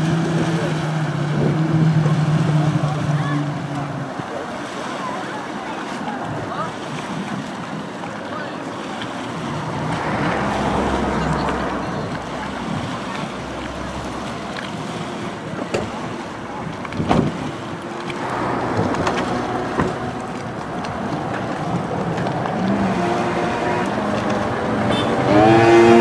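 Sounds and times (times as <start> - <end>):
jet ski engine idling: 0.0 - 26.0
water lapping: 0.0 - 26.0
wind buffeting microphone: 0.0 - 26.0.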